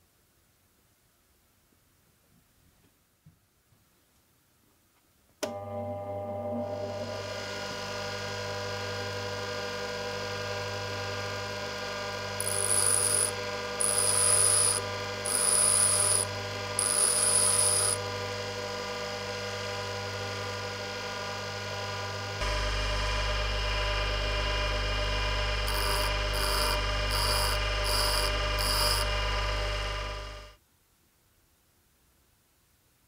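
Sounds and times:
bench grinder motor hum: 5.8 - 30.6
drill bit grinding on wheel: 12.4 - 18.0, 25.6 - 30.5.

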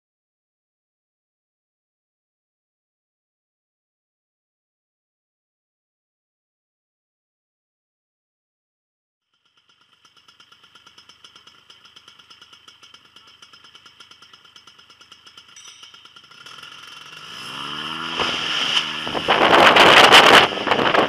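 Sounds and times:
paramotor engine revving: 9.7 - 21.0
propeller blast over microphone: 16.2 - 21.0.

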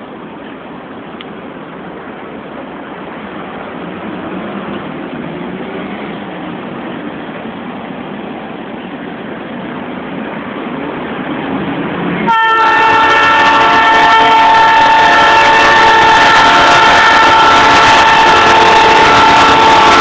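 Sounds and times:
diesel locomotives rumbling: 0.0 - 20.0
locomotive air horn: 12.2 - 20.0.

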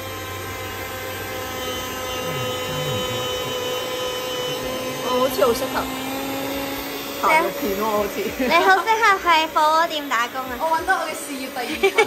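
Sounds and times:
electric food slicer motor hum: 0.0 - 12.0.

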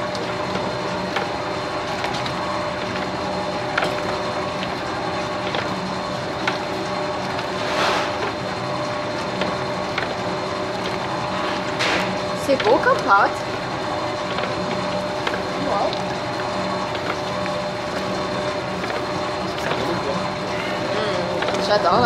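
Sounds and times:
dough clicks and knocks: 0.0 - 7.6, 12.4 - 20.0
dough mixer motor hum: 0.0 - 22.0.

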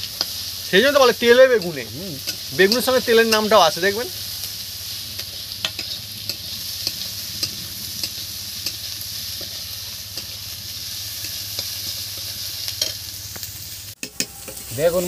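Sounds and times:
onions sizzling in oil: 0.0 - 15.0
metal spatula scraping pan: 5.2 - 10.5.

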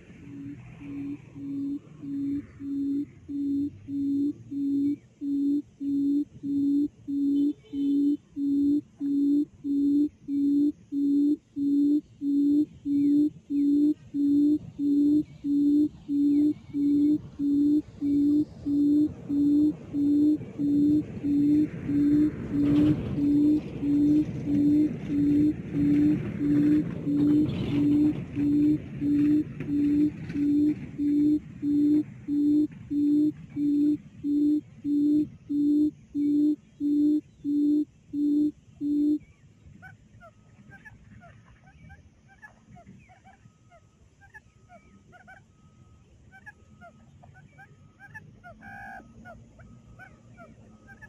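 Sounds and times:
background hiss: 0.0 - 41.9
quail call through loudspeaker: 14.6 - 33.7, 39.8 - 51.0.

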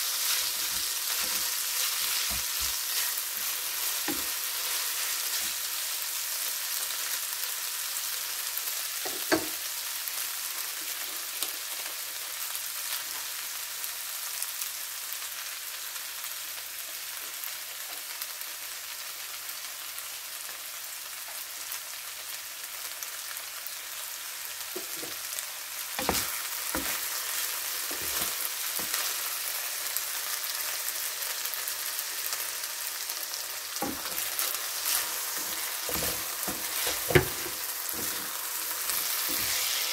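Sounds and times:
food sizzling in frying pan: 0.0 - 39.9
utensils knocking against pan: 9.1 - 9.6, 26.0 - 27.0, 33.8 - 38.3.

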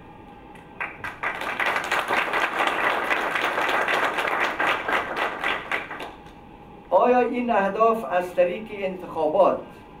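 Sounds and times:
audience applauding: 0.8 - 6.2.

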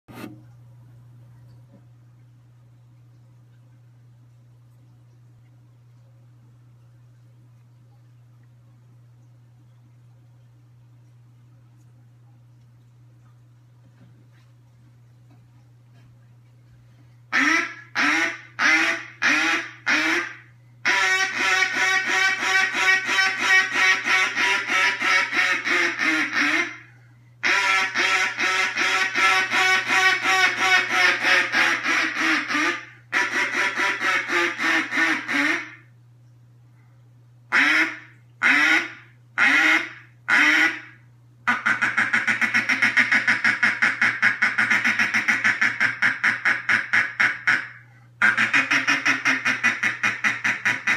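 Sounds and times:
duck call quacks: 17.3 - 35.9, 37.5 - 50.9.

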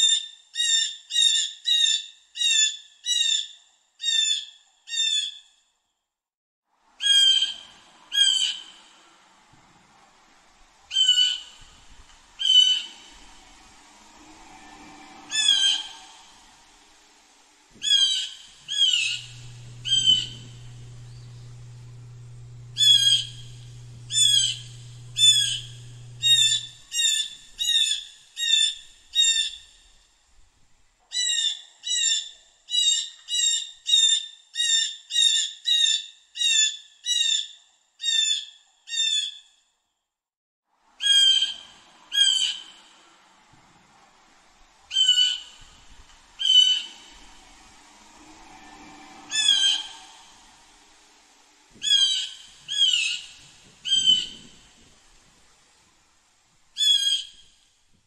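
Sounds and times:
low steady hum: 7.6 - 27.8, 41.6 - 56.8
blue jay squawking calls: 44.9 - 45.6, 51.8 - 54.4.

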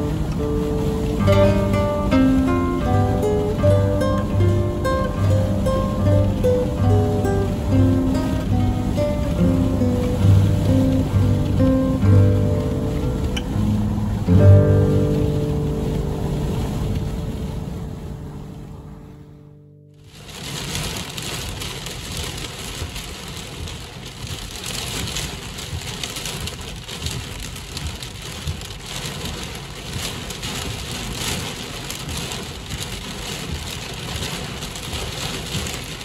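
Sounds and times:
low rumble: 0.0 - 20.8
heavy rain on car roof: 0.0 - 36.0.

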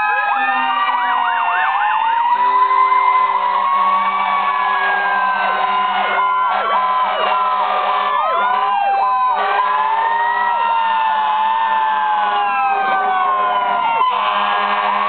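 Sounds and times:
fire engine sirens wailing: 0.0 - 15.0.

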